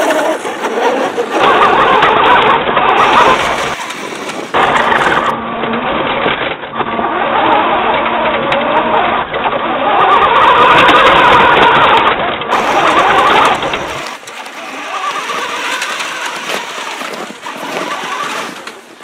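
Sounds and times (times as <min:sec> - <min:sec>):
toy truck motor whining: 0:00.0 - 0:06.2, 0:06.8 - 0:19.0.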